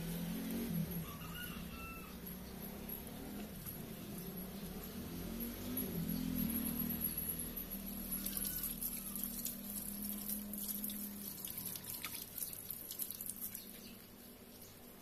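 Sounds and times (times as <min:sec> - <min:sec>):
tap water running and splashing: 0:08.0 - 0:14.2.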